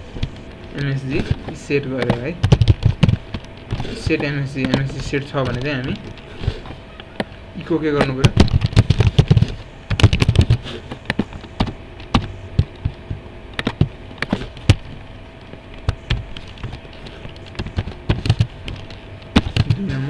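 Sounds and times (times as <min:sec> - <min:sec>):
keyboard typing: 0:00.2 - 0:07.4.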